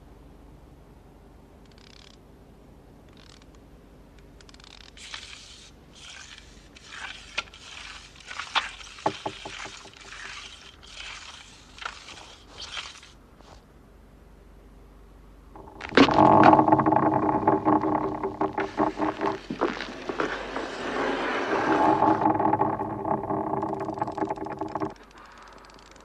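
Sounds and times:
scraping and rustling: 5.0 - 13.6, 15.6 - 25.1
short low rattle: 15.5 - 26.0.

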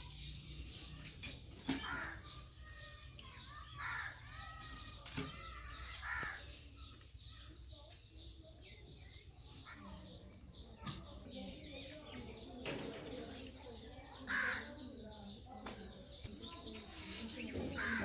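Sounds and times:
crow cawing: 1.8 - 2.3, 3.8 - 4.2, 6.0 - 6.4, 14.3 - 14.7, 17.8 - 18.0.

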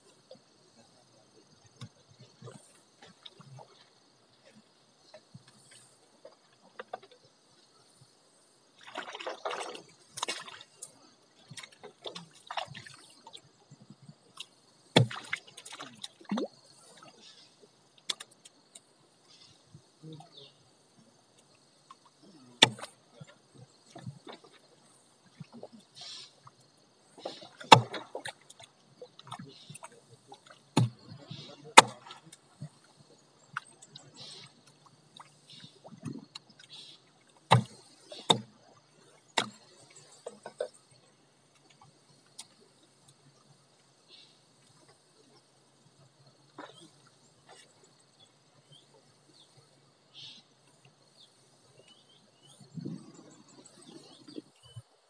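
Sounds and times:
water splashing and sloshing: 0.0 - 55.0.

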